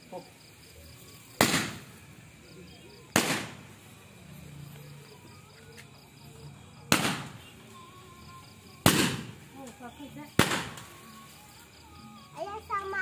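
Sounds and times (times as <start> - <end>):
firework shots: 1.2 - 4.1, 6.8 - 7.8, 8.5 - 11.4.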